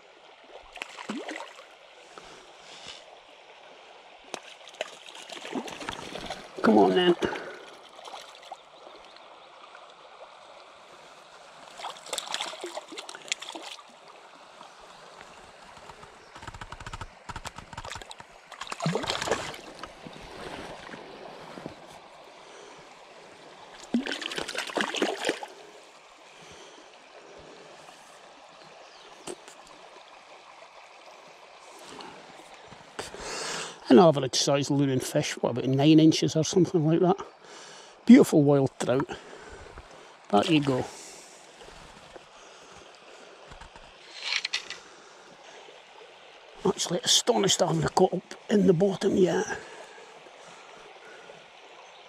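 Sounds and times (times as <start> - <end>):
stream trickling over stones: 0.0 - 52.0
fish splashing at surface: 17.4 - 19.8, 23.8 - 25.5.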